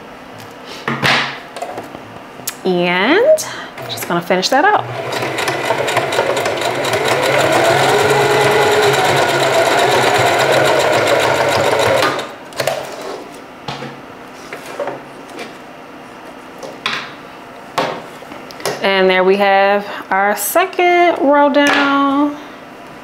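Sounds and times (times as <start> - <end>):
sewing machine stitching: 4.8 - 12.4.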